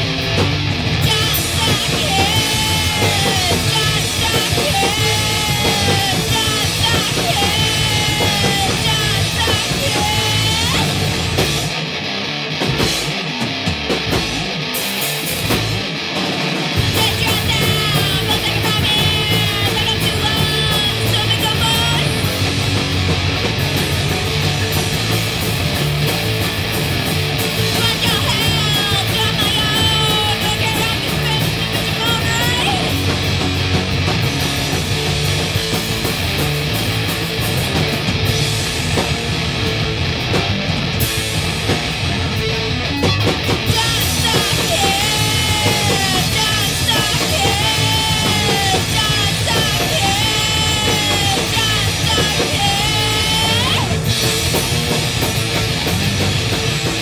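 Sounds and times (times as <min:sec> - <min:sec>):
punk band playing: 0:00.0 - 0:57.0
shouted vocals: 0:00.9 - 0:11.8, 0:16.7 - 0:24.7, 0:27.4 - 0:35.8, 0:42.7 - 0:54.2.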